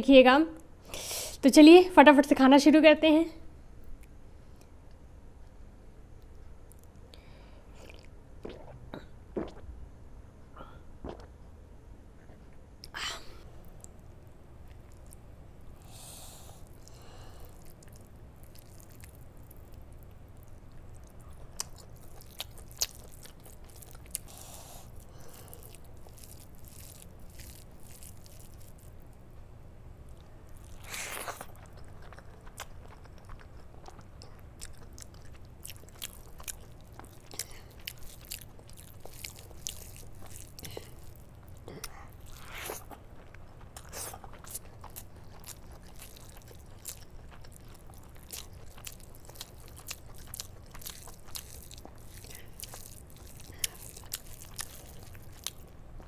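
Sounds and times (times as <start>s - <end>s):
biting and chewing: 16.4s - 29.3s, 30.0s - 56.0s
hand mixing wet food: 16.6s - 29.0s, 34.6s - 41.6s, 42.2s - 55.7s.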